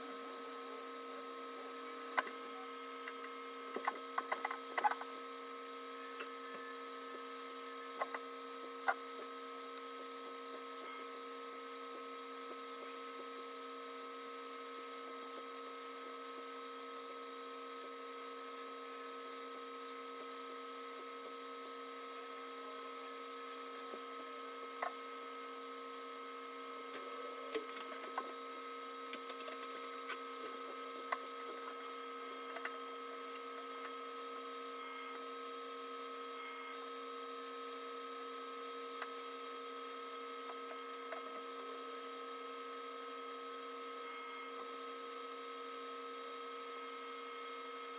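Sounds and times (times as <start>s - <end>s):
electrical hum: 0.0s - 47.9s.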